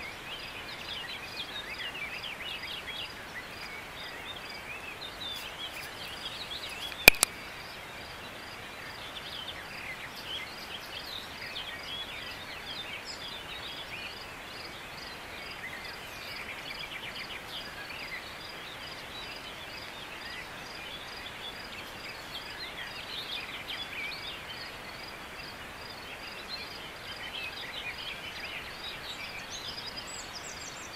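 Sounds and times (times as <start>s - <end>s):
small birds chirping: 0.0s - 30.9s
steady low hiss: 0.0s - 30.9s
sharp click: 6.9s - 7.3s.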